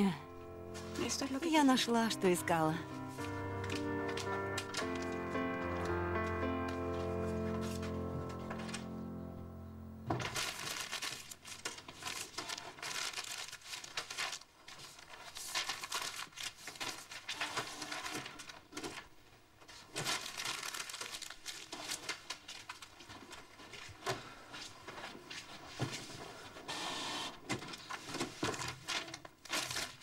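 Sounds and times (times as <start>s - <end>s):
paper being crumpled: 0.7s - 9.0s, 10.1s - 26.3s, 27.5s - 30.0s.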